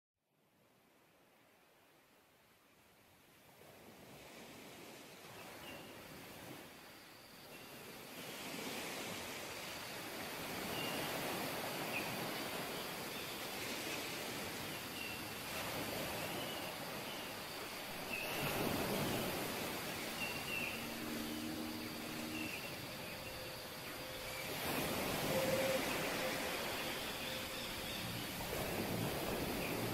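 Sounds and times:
river flowing: 6.0s - 29.9s.

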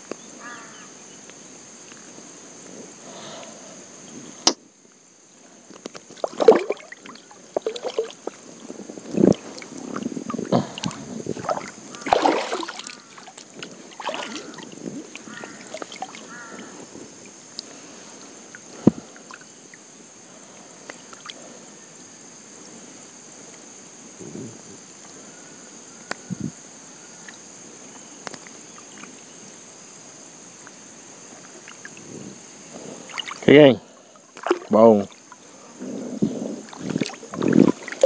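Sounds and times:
water splashing and sloshing: 5.8s - 19.5s, 33.0s - 35.8s, 36.6s - 38.0s.

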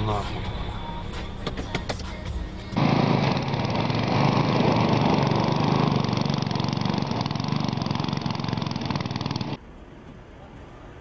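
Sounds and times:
riding lawn mower engine running: 2.8s - 9.6s.

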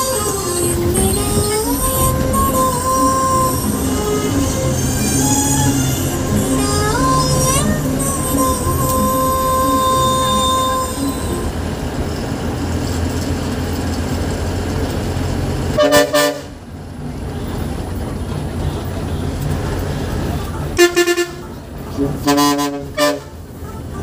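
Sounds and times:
bus engine and road noise: 0.0s - 24.0s
horn toots: 15.8s - 16.6s, 20.7s - 24.0s.

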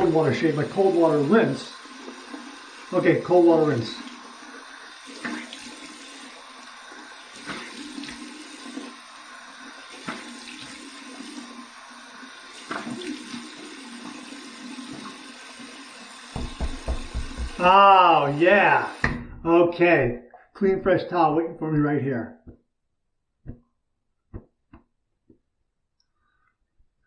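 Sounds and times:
water running from a tap: 0.0s - 19.2s
water splashing on face: 7.4s - 8.3s, 16.3s - 18.2s.

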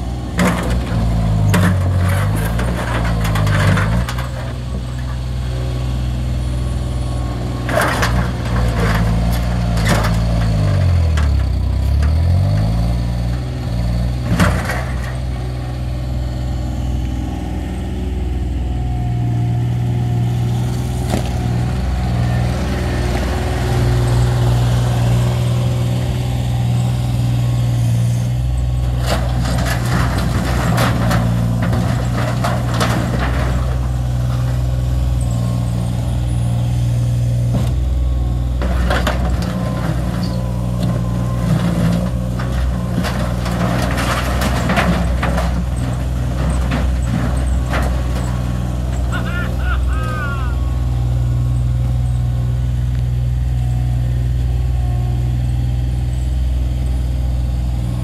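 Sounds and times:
loader engine running: 0.0s - 58.0s
metal clattering and crunching: 0.3s - 5.3s, 7.4s - 15.6s, 28.6s - 35.8s, 38.4s - 50.0s.

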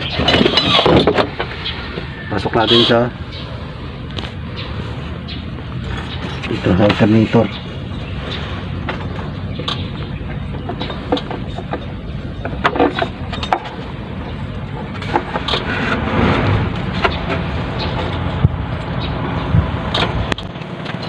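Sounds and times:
steady low rumble: 7.4s - 20.4s.

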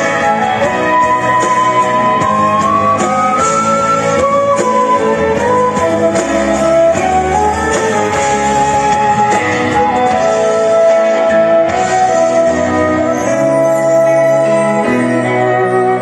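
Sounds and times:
amplified backing track: 0.0s - 16.0s
cajon percussion: 0.0s - 16.0s
flute melody: 0.0s - 16.0s
violin melody: 0.0s - 16.0s.

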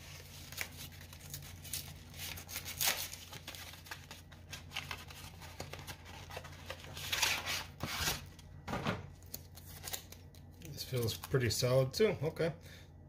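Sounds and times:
cardboard scraping and tearing: 5.1s - 8.3s.

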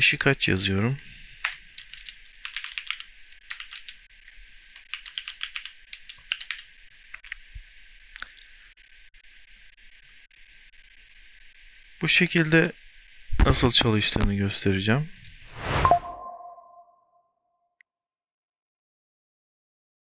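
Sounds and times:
typing on computer keyboard: 1.4s - 4.0s, 4.8s - 6.7s.

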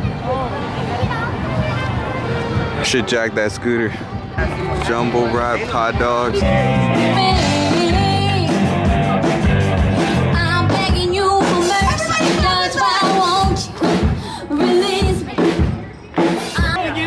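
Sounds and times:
drums: 0.0s - 3.0s, 6.3s - 17.0s.

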